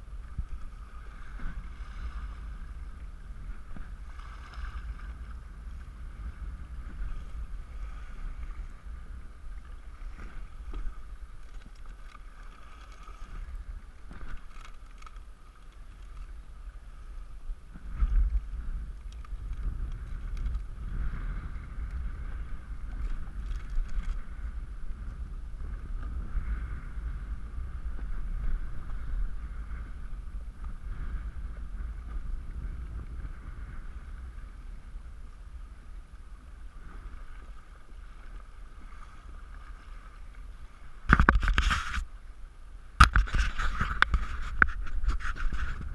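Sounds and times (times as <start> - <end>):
water lapping against kayak hull: 0.0 - 45.9
wind rumbling on microphone: 0.0 - 45.9.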